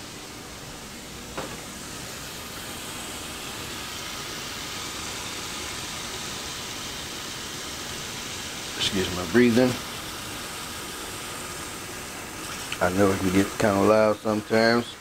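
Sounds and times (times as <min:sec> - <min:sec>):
steady hissing noise: 0:00.0 - 0:15.0
light knock: 0:01.4 - 0:01.6.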